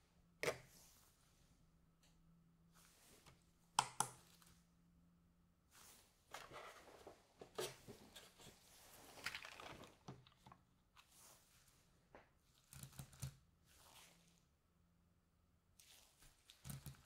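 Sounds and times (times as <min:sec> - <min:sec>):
plastic cup crinkling: 0:08.8 - 0:10.6.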